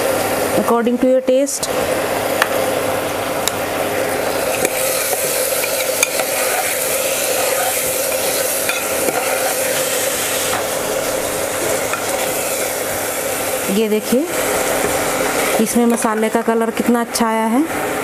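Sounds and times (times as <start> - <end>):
steady hum: 0.0 - 18.0
vegetables sizzling: 0.0 - 18.0
spatula scraping metal pan: 4.9 - 10.2.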